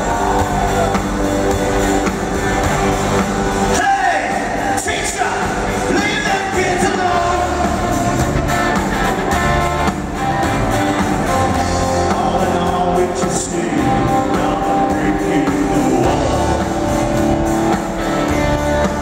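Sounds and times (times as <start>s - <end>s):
country rock band playing: 0.0s - 19.0s
person singing: 3.7s - 8.2s, 11.6s - 17.2s.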